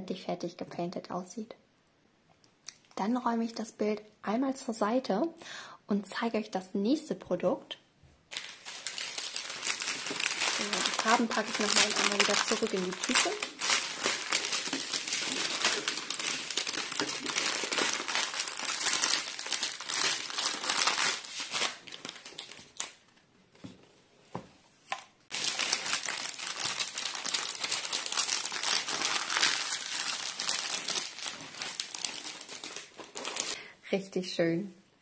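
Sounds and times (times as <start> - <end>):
plastic film crinkling: 8.3 - 23.1, 24.9 - 33.6.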